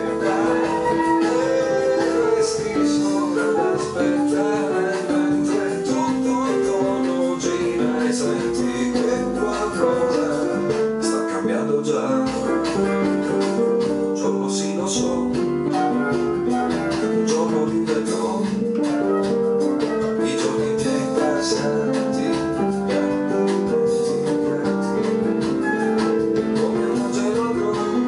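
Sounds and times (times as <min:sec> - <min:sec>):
keyboard chords: 0:00.0 - 0:28.0.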